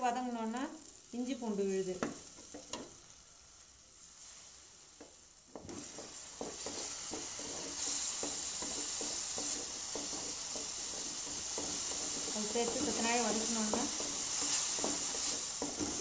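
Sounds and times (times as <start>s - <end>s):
vegetables sizzling in hot oil: 0.0s - 16.0s
spatula scraping the pan: 5.5s - 16.0s.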